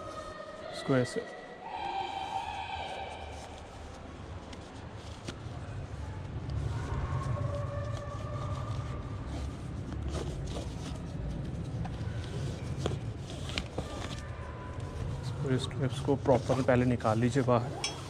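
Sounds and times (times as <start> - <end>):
straps and buckles handled: 3.3 - 5.6, 7.9 - 15.3, 16.0 - 18.0.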